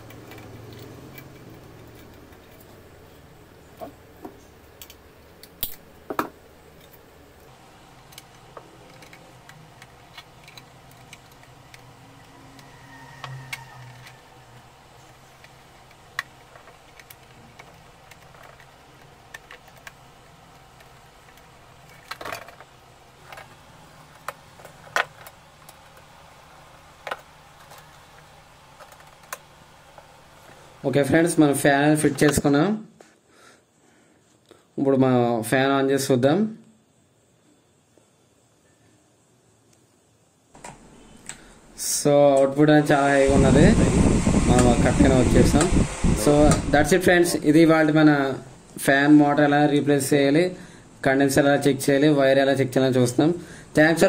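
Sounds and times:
plastic fan parts clicking: 0.0s - 2.8s, 7.9s - 26.1s, 27.0s - 30.1s
pliers working at wiring: 6.7s - 26.1s.

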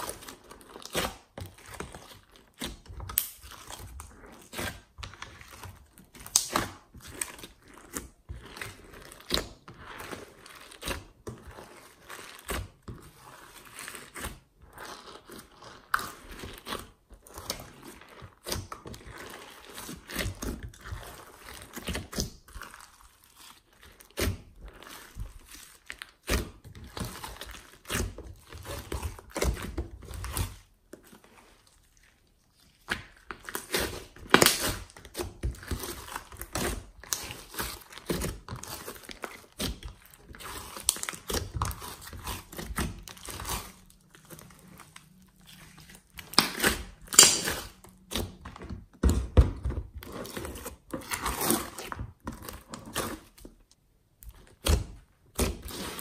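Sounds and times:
slime squelching and popping: 0.0s - 56.0s.

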